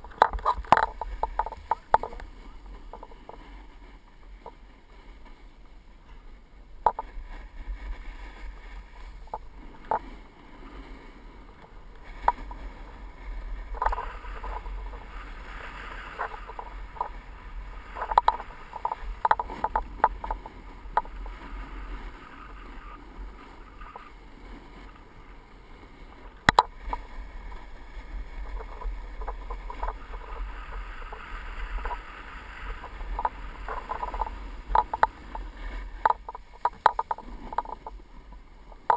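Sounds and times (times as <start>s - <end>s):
sharp clicks and knocks: 0.0s - 2.3s, 6.8s - 7.1s, 13.7s - 14.7s, 18.0s - 21.1s, 26.5s - 27.0s, 33.1s - 35.4s, 36.0s - 38.0s
snowboard scraping on snow: 7.1s - 36.6s.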